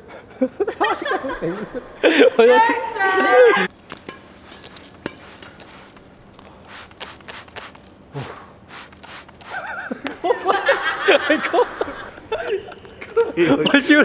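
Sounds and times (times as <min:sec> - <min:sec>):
man laughing: 0:00.1 - 0:03.7, 0:09.5 - 0:14.0.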